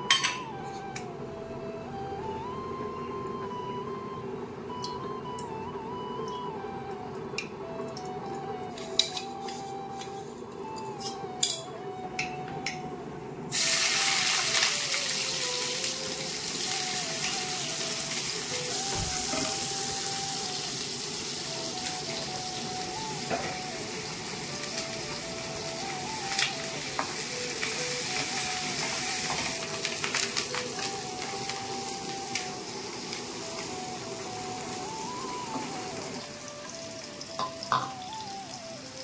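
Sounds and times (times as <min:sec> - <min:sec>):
onions sizzling in hot oil: 0:13.5 - 0:39.0.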